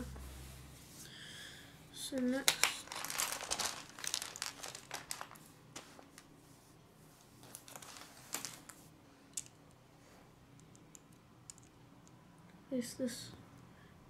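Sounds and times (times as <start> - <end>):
plastic toy bricks clicking: 10.6 - 11.8.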